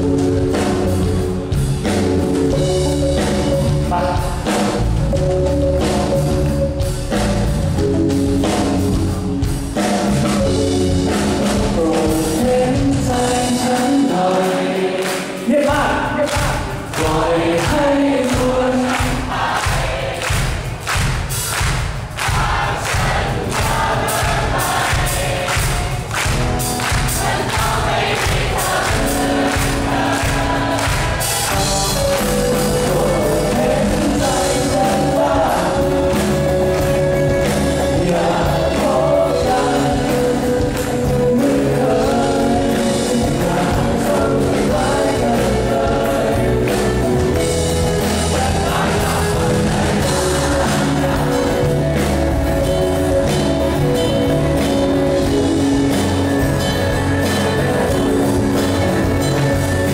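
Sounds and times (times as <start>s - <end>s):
drum kit: 0.0s - 59.9s
person singing: 9.8s - 19.5s, 27.5s - 59.9s.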